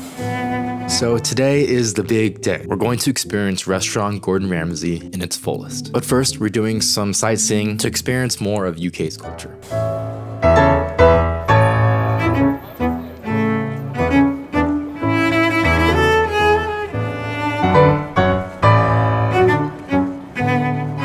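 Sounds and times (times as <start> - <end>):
piano: 0.0 - 8.1, 9.2 - 21.0
bowed strings: 10.0 - 21.0.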